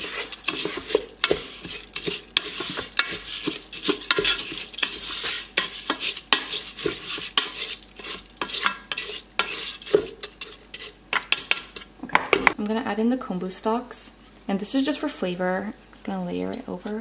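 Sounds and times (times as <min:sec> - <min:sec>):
rice grains swishing and scraping: 0:00.0 - 0:11.0.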